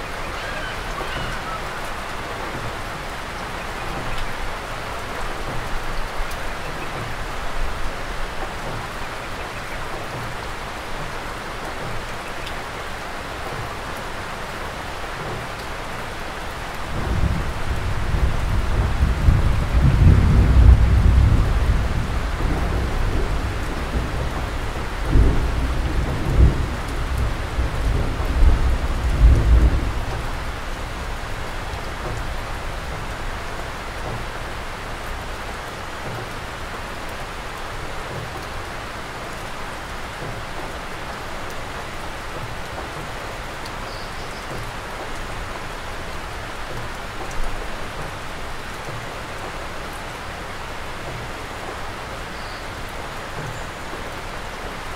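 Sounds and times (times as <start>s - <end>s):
rain falling: 0.0s - 54.9s.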